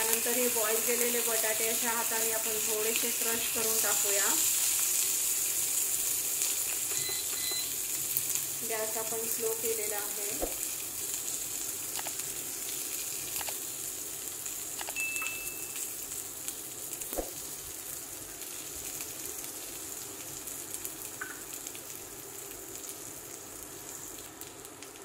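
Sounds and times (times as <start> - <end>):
spices sizzling in oil: 0.0 - 25.0
short high beep: 6.9 - 7.7, 14.9 - 15.9.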